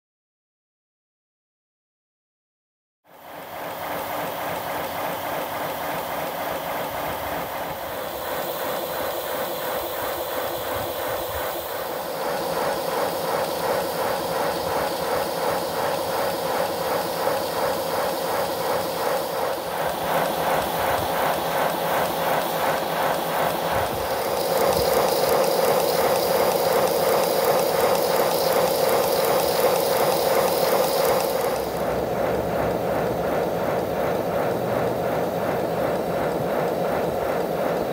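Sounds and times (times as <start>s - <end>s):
steam locomotive exhaust beats: 3.3s - 37.9s
clatter of locomotive motion: 3.4s - 37.9s
steam hiss: 5.8s - 32.7s.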